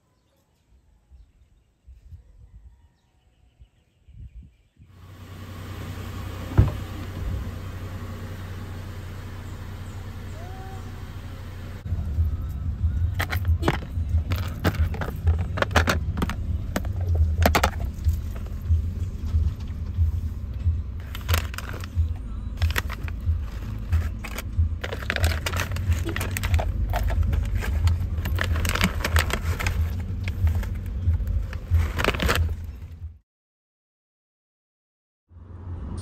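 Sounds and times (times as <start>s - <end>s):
car cabin rumble: 5.3s - 7.8s, 9.4s - 33.2s
plastic container clicking and rattling: 13.2s - 18.6s, 21.0s - 32.7s.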